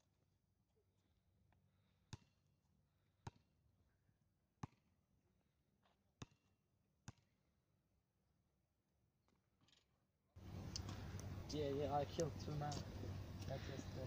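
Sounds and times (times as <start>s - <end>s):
low steady hum: 10.4s - 14.0s.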